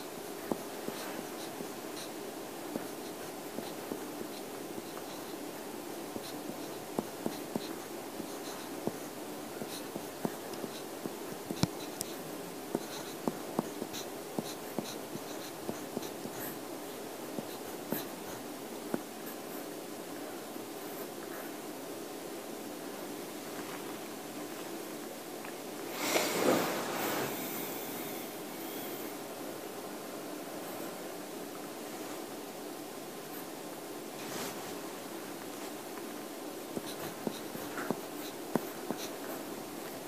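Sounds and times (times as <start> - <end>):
low room hum: 0.0 - 40.0
pen scratching on paper: 6.1 - 16.6, 36.8 - 39.4.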